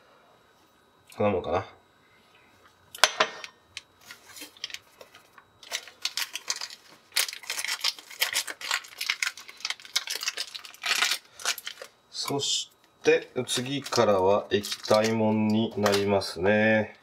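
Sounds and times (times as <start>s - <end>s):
foil packet crinkling: 4.0s - 16.4s.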